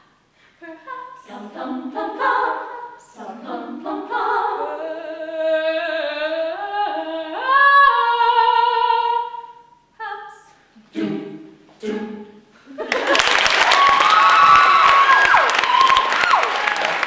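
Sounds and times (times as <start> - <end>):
group singing in harmony: 0.6 - 12.5.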